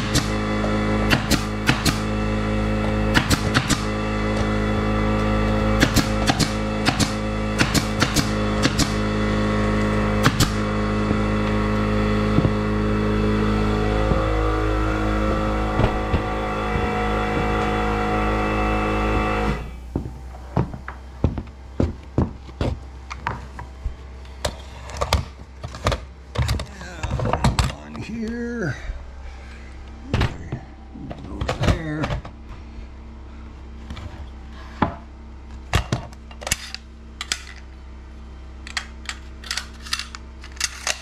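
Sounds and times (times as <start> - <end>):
nail gun firing: 0.0 - 0.4, 1.0 - 2.2, 3.1 - 4.0, 5.8 - 9.2, 10.2 - 10.7
air compressor humming: 0.0 - 41.0.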